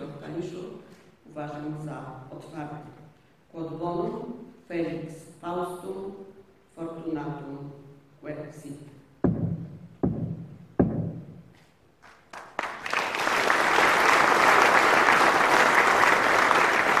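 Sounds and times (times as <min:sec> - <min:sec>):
heavy knocks ringing in a hall: 0:09.2 - 0:11.6
audience applause: 0:12.3 - 0:17.0.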